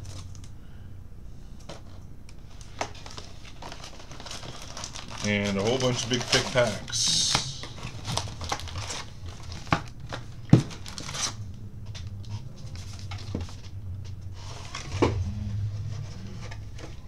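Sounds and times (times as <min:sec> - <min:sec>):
steady low hum: 0:00.0 - 0:17.0
card packs knocking and crinkling: 0:01.6 - 0:15.2.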